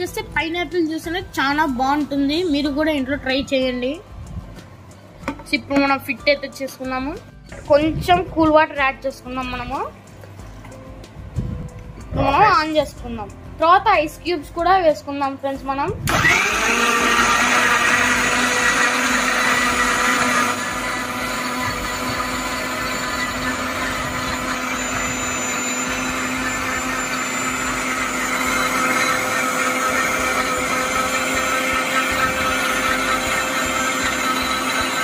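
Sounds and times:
mixer grinder whirring: 0:16.0 - 0:35.0.

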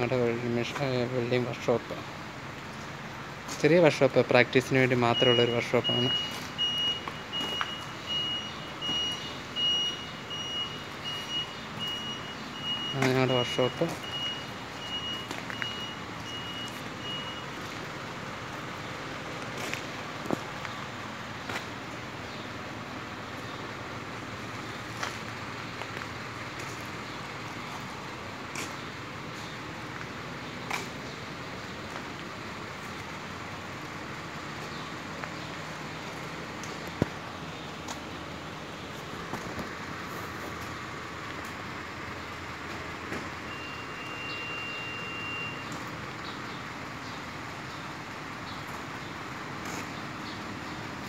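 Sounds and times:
workshop background rush: 0:00.0 - 0:22.0
electronic warning beeps: 0:05.1 - 0:17.8, 0:43.4 - 0:45.8.

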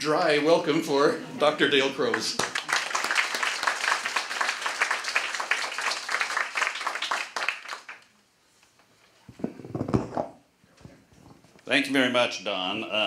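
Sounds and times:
small audience applauding: 0:02.0 - 0:08.2.

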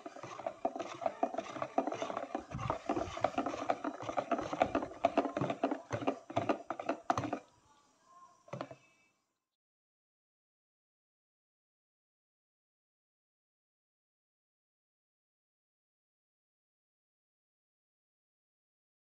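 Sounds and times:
whisk beating batter in a bowl: 0:00.0 - 0:07.4.

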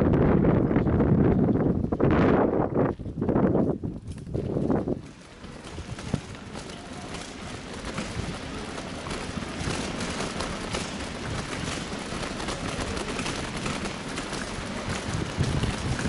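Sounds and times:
bicycle road noise: 0:00.0 - 0:16.0
wind rushing over microphone: 0:00.0 - 0:16.0
small clicks and rattles: 0:04.0 - 0:16.0.

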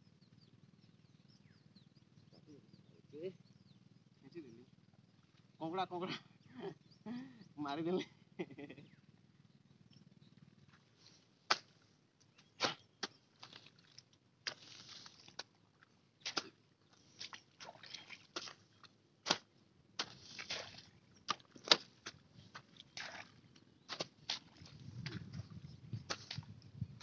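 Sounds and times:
hoe chopping into mud: 0:11.5 - 0:11.7, 0:12.6 - 0:13.7, 0:16.2 - 0:16.6, 0:17.2 - 0:18.6, 0:19.2 - 0:23.3, 0:23.9 - 0:25.2, 0:26.1 - 0:26.4
scraping and rustling of grass: 0:14.5 - 0:15.5, 0:20.0 - 0:20.9.

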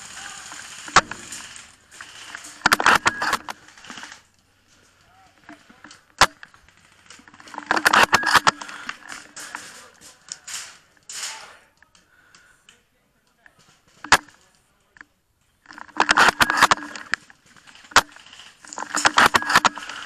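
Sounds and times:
airsoft gun bursts: 0:00.0 - 0:04.2
sharp crack: 0:00.0 - 0:04.5, 0:05.1 - 0:12.0.

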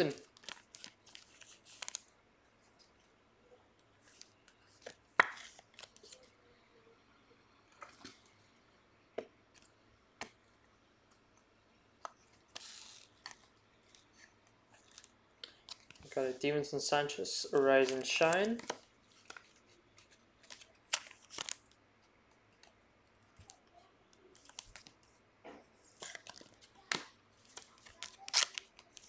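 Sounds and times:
cards rustling: 0:00.0 - 0:02.1, 0:12.1 - 0:21.7, 0:24.3 - 0:25.1, 0:25.8 - 0:29.0.

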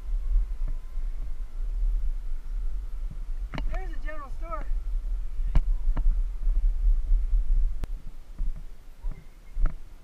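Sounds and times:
low rumbling ride noise: 0:00.0 - 0:10.0.

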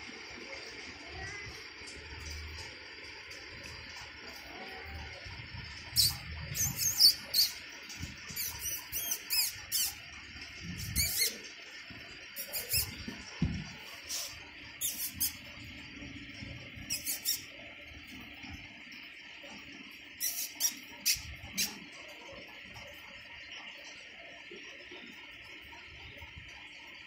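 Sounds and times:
high-pitched chirps and squeaks: 0:05.9 - 0:10.1, 0:10.8 - 0:11.5, 0:12.4 - 0:13.1, 0:14.1 - 0:15.5, 0:16.8 - 0:17.6, 0:20.1 - 0:21.8.

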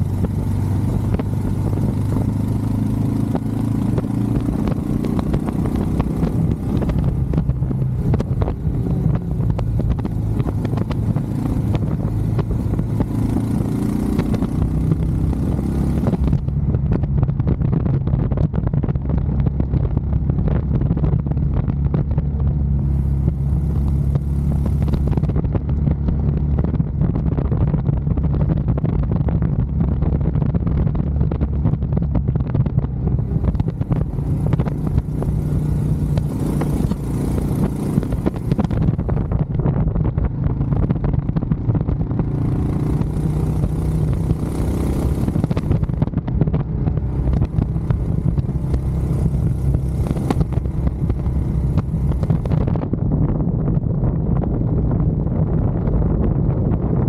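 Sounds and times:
motorcycle engine running: 0:00.0 - 0:57.0
wind rushing over microphone: 0:00.0 - 0:57.0.

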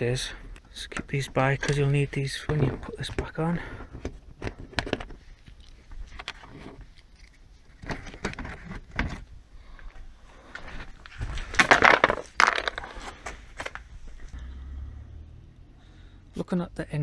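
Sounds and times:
plastic panels clicking and rustling: 0:00.5 - 0:05.2, 0:06.1 - 0:09.3, 0:11.0 - 0:13.9
plastic scraping on brick paving: 0:10.6 - 0:13.9.

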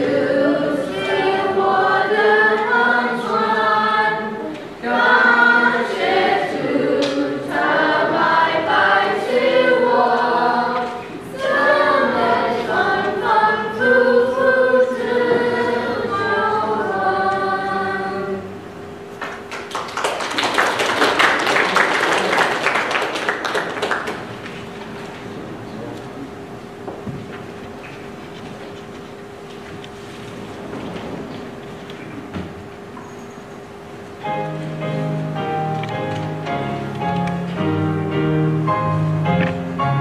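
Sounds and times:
children's choir singing: 0:00.0 - 0:18.7
audience applauding: 0:19.2 - 0:24.6.

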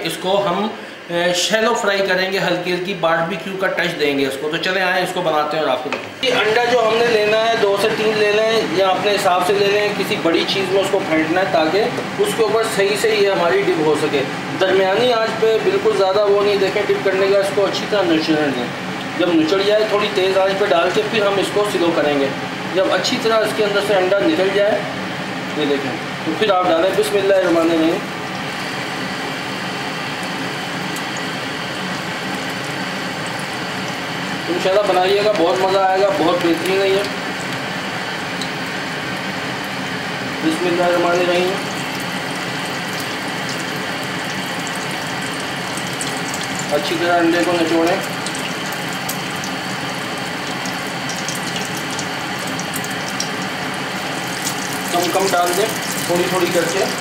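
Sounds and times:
chicken frying in hot oil: 0:26.3 - 0:57.0.

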